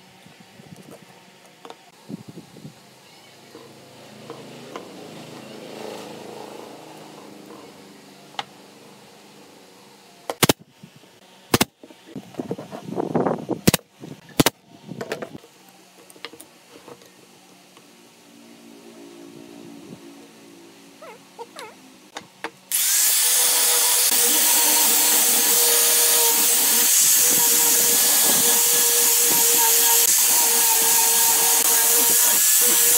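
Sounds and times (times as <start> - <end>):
nail gun firing: 10.3 - 10.6, 11.5 - 11.7, 14.4 - 14.6.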